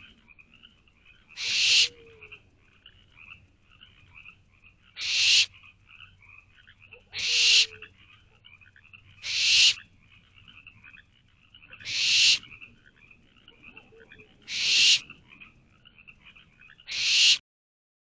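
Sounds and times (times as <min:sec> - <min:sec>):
owlets hissing: 0:01.4 - 0:02.0, 0:05.0 - 0:05.5, 0:07.2 - 0:07.7, 0:09.2 - 0:09.8, 0:11.8 - 0:12.4, 0:14.5 - 0:15.0, 0:16.9 - 0:17.4.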